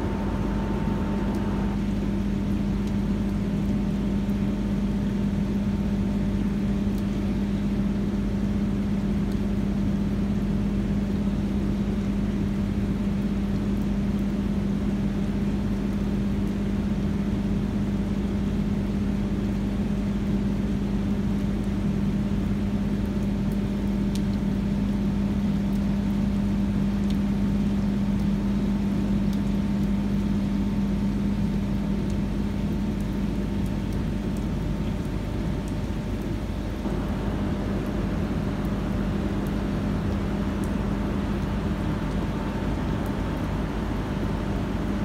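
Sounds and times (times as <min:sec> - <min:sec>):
turbine generator hum: 0:00.0 - 0:08.8, 0:34.3 - 0:45.0
rain hiss: 0:00.0 - 0:45.0.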